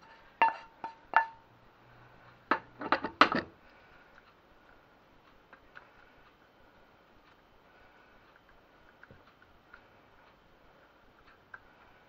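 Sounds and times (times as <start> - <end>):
wooden spoon knocking in pan: 0.4 - 1.4.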